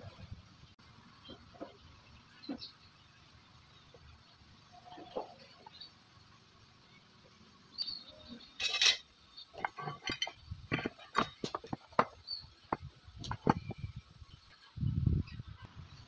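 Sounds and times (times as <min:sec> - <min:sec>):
hard objects clinking: 0:08.6 - 0:13.8.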